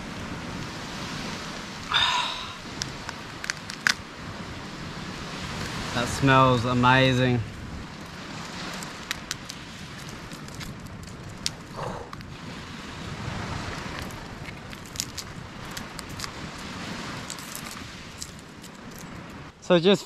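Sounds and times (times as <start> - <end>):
steady outdoor hiss: 0.0 - 20.0
campfire crackling and popping: 2.6 - 4.5, 7.5 - 19.5.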